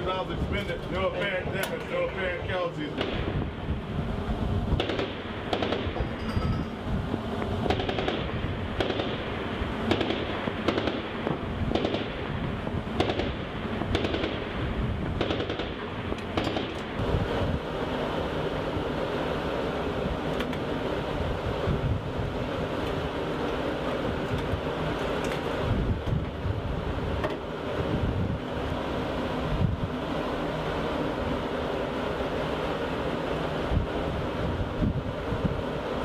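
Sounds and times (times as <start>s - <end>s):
wind noise: 0.0s - 19.1s, 19.8s - 32.1s, 32.8s - 36.0s
gun firing single shots: 4.8s - 6.0s, 7.7s - 9.3s, 9.9s - 12.2s.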